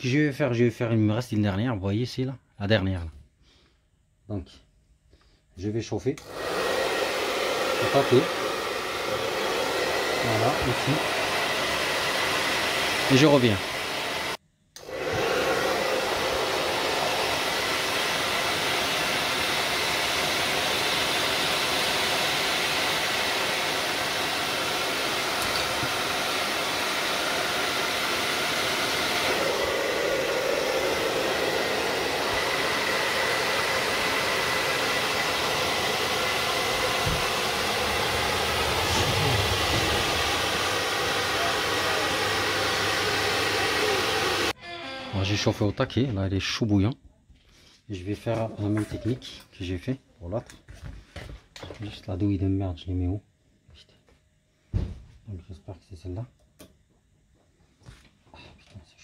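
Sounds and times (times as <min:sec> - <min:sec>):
hair dryer blowing with whine: 0:06.2 - 0:45.7, 0:48.0 - 0:49.4.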